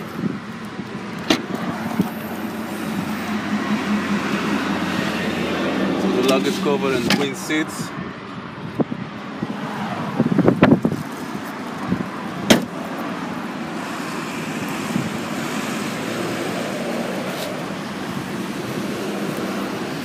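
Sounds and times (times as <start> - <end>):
distant traffic: 0.0 - 20.0
wind: 0.0 - 20.0
car tailgate slamming: 1.2 - 1.6, 12.4 - 12.8.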